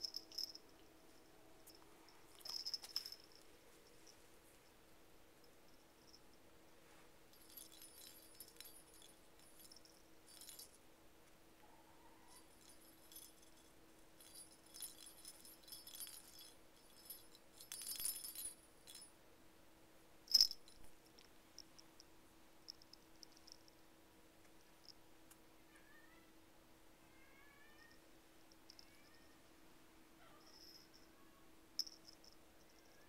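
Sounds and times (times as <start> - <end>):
light jingling and clicking: 0.0 - 4.8, 7.3 - 10.8, 12.2 - 19.1, 20.3 - 22.1, 22.7 - 23.8, 28.5 - 29.2, 30.2 - 31.2, 31.8 - 33.0
faint hum: 0.0 - 33.0.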